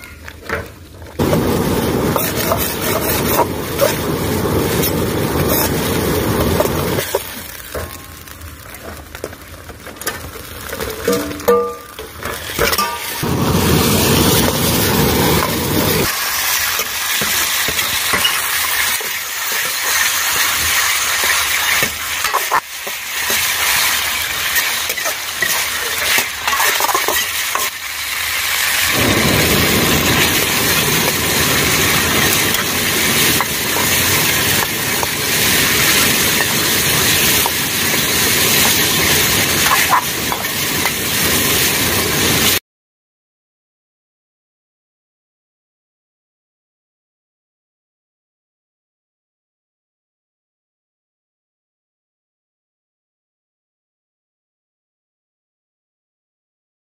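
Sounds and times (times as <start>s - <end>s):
food sizzling in oil: 1.1s - 42.6s
ladle scraping against pan: 24.5s - 27.7s.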